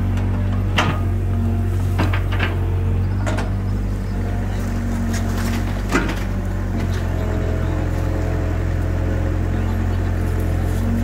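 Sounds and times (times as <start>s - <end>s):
excavator bucket knocks and clanks: 0.0s - 3.9s, 5.0s - 7.4s
excavator diesel engine running: 0.0s - 11.0s.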